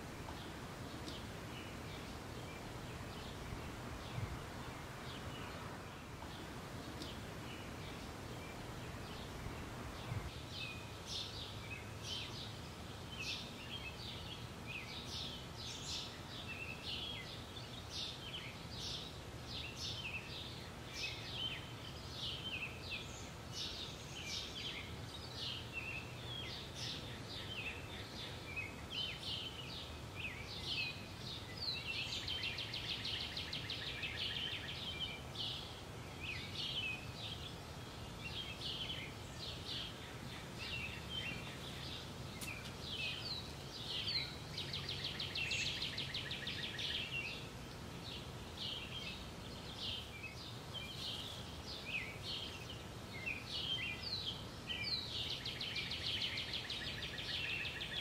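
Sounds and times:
faint outdoor hum: 0.0 - 58.0
songbirds chirping and singing: 0.0 - 58.0.

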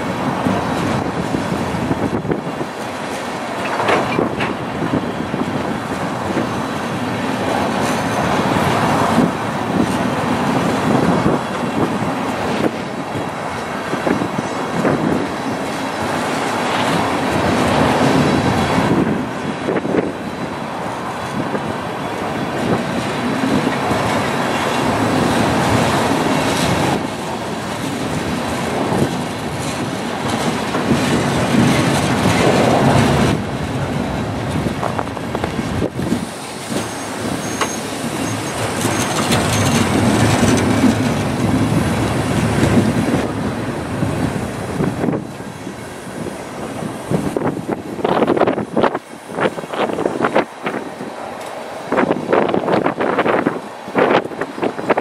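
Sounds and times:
train wheels rumbling on rails: 0.0 - 55.0
faint high squeal: 36.8 - 39.8.

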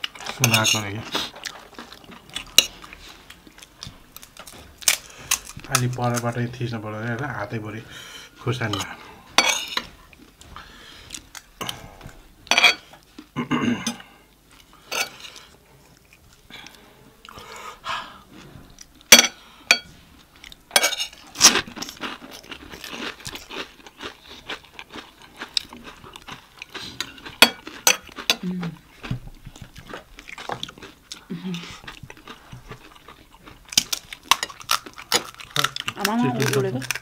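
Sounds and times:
chewing and crunching snack: 0.0 - 6.4, 20.2 - 37.0.

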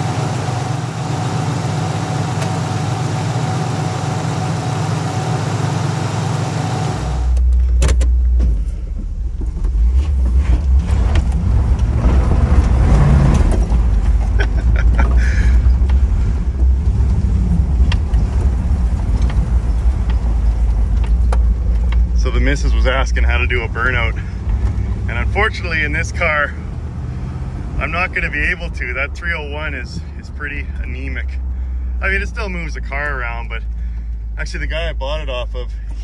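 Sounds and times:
car engine rumble: 0.0 - 36.0
clicks and rattles: 17.8 - 22.3.

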